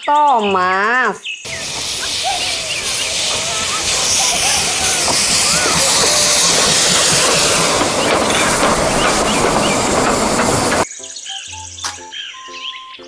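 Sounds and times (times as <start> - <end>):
steam locomotive venting steam: 1.5 - 10.9
background music: 10.8 - 13.0.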